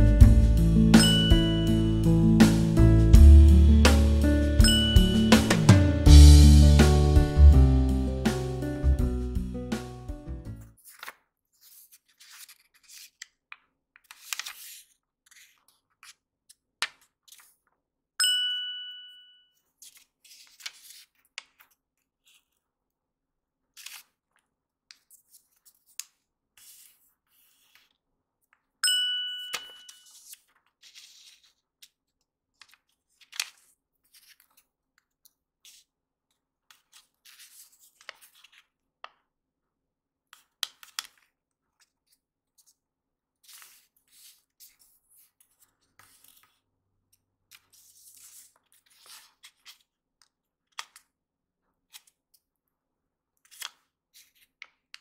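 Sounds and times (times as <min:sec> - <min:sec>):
bright ding: 0:00.8 - 0:02.6, 0:03.9 - 0:06.4, 0:18.2 - 0:19.4, 0:28.8 - 0:30.1
paper crinkling and rustling: 0:10.6 - 0:17.8, 0:19.6 - 0:22.7, 0:23.7 - 0:28.0, 0:29.7 - 0:35.9, 0:36.7 - 0:38.8, 0:40.4 - 0:42.8, 0:43.4 - 0:46.6, 0:47.5 - 0:50.0, 0:53.4 - 0:55.0.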